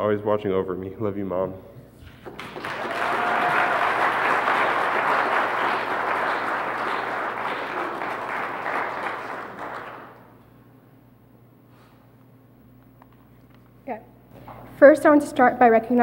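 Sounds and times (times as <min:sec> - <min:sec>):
congregation applauding: 0:02.0 - 0:10.4.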